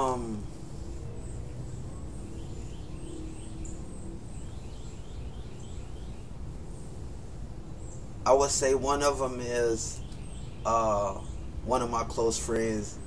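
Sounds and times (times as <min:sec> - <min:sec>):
bird chirps: 0:00.0 - 0:06.9, 0:09.8 - 0:13.0.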